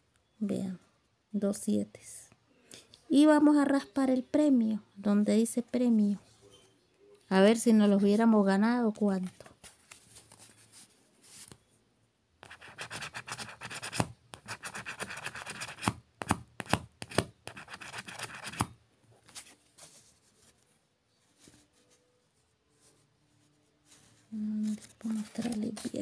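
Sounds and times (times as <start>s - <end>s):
scratching lottery ticket coating: 12.5s - 15.9s, 17.5s - 18.7s.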